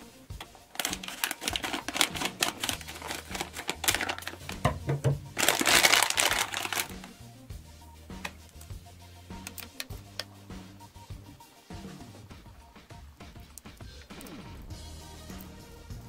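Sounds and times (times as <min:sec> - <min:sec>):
foil packet crinkling: 0:00.4 - 0:07.1.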